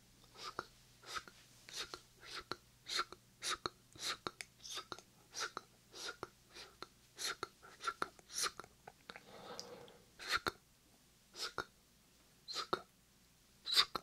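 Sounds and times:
whispered hissing mouth sounds: 0.3 - 10.6, 11.3 - 11.7, 12.5 - 12.9, 13.6 - 14.0
wet mouth clicks: 1.7 - 10.6, 12.5 - 12.8.

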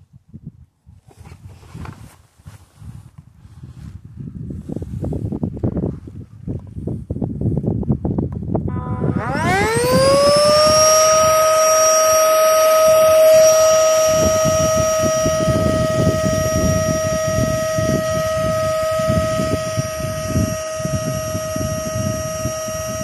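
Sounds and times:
electric pump whining: 8.7 - 23.0.

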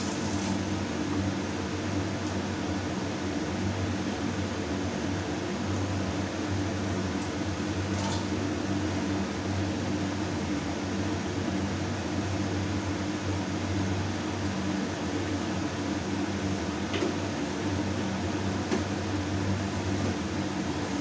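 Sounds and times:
fan humming: 0.0 - 21.0.

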